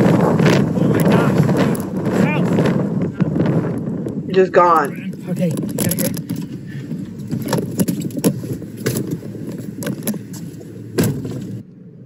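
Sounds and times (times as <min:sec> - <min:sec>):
knocks and rattles: 0:00.0 - 0:10.4
road rumble inside vehicle: 0:00.0 - 0:12.0.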